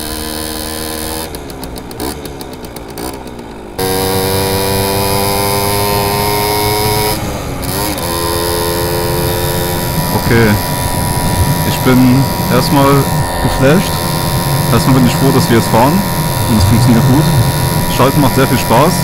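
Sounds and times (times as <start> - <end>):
moped engine revving: 0.0 - 19.0.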